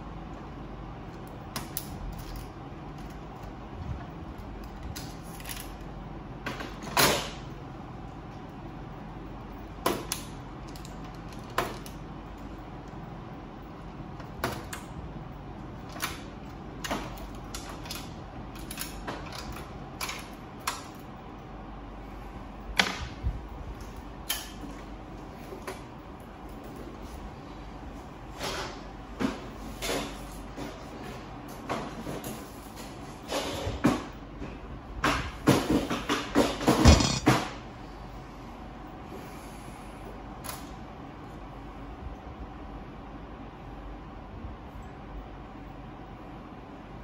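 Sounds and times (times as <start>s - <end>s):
plastic parts clicking and knocking: 36.7s - 37.4s.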